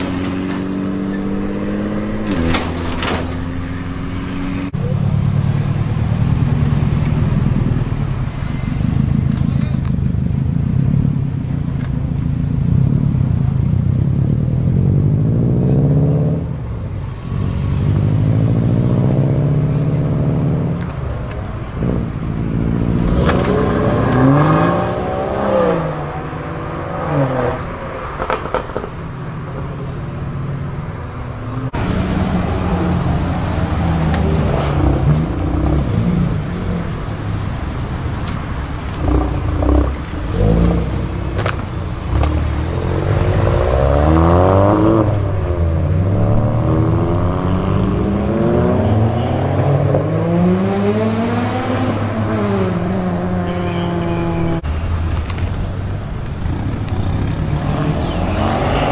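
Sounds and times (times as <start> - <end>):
cars driving past: 0.0 - 58.9
engine revving: 21.8 - 27.7, 38.9 - 54.7, 56.4 - 58.9.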